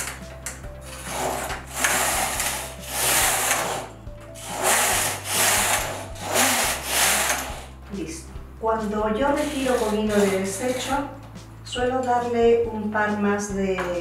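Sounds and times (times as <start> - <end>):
knitting machine carriage swishing: 0.8 - 7.8, 9.3 - 11.1.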